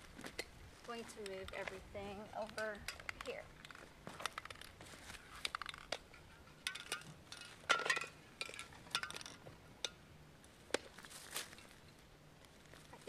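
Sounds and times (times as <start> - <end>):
spray paint cans clinking: 5.4 - 10.0.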